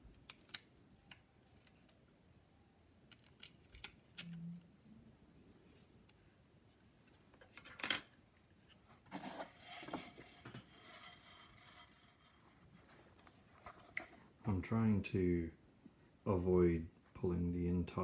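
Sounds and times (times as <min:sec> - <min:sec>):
scraping and rustling: 0:08.7 - 0:14.0.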